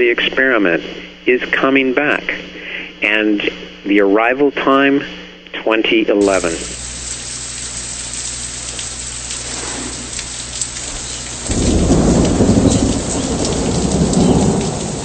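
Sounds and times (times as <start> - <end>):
steady rain hiss: 0.0 - 5.4, 6.2 - 15.0
rain drop ticks: 6.2 - 15.0
low rumble of thunder: 11.4 - 15.0.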